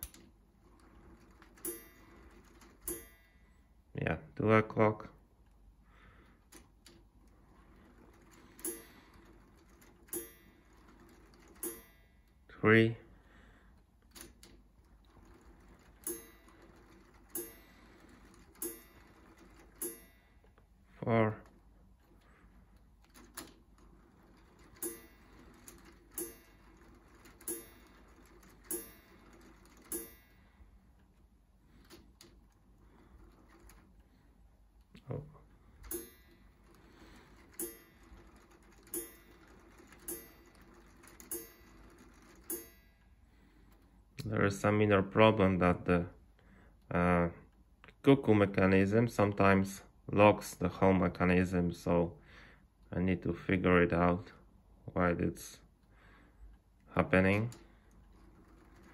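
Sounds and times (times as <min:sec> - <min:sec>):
clock striking: 0:00.0 - 0:03.6, 0:06.5 - 0:12.6, 0:14.1 - 0:34.2, 0:35.0 - 0:43.9.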